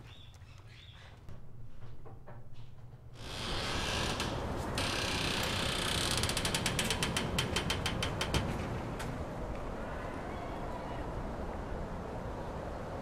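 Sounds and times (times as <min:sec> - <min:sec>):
street noise hiss: 0:03.1 - 0:13.0
glass door opening: 0:03.2 - 0:09.2.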